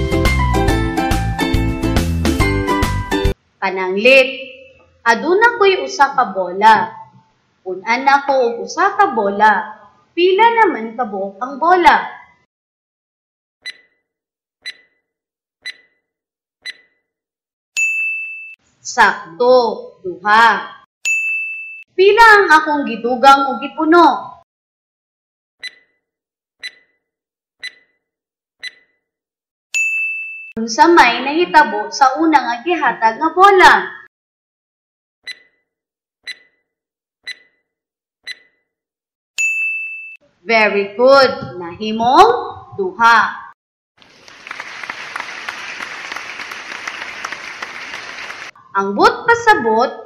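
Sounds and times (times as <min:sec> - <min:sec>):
clock-like ticks: 0:13.6 - 0:14.0, 0:14.6 - 0:15.0, 0:15.6 - 0:16.0, 0:16.6 - 0:16.9, 0:25.6 - 0:26.0, 0:26.6 - 0:26.9, 0:27.6 - 0:27.9, 0:28.6 - 0:28.9, 0:35.3 - 0:35.6, 0:36.3 - 0:36.6, 0:37.3 - 0:37.6, 0:38.3 - 0:38.5
bright ding: 0:17.8 - 0:18.6, 0:21.0 - 0:21.9, 0:29.8 - 0:30.6, 0:39.4 - 0:40.2.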